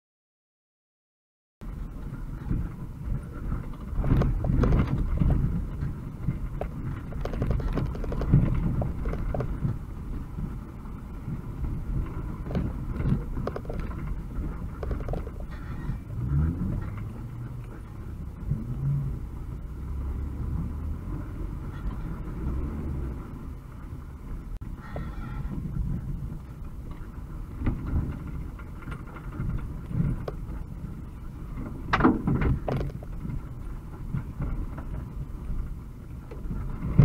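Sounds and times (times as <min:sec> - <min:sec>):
van engine running at low speed: 0:01.6 - 0:37.0
body and fittings rattling: 0:03.5 - 0:09.8, 0:12.1 - 0:17.9, 0:31.6 - 0:35.1.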